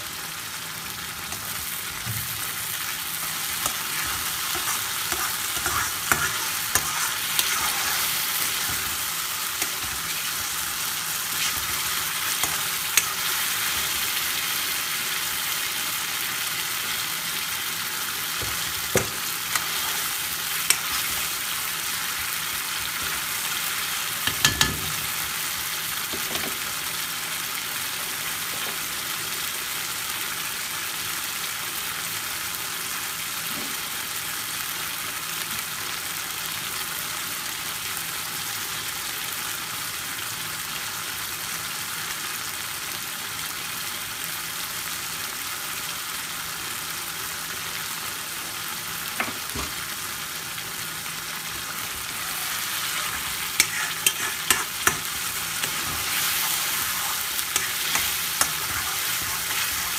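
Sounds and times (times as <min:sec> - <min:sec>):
curry sauce sizzling: 0:00.0 - 0:59.9
metal spoon knocking on pan: 0:24.2 - 0:24.9.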